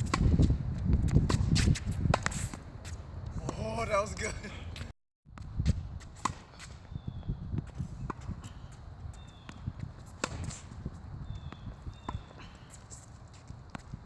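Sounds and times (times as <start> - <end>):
tennis racket hitting ball: 6.2 - 6.6, 9.5 - 10.7
footsteps on hard court: 7.5 - 14.0.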